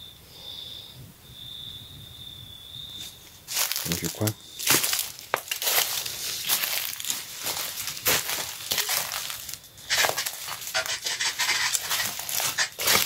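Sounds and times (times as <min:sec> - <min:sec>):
footsteps crunching on dry leaves: 0:03.0 - 0:13.0.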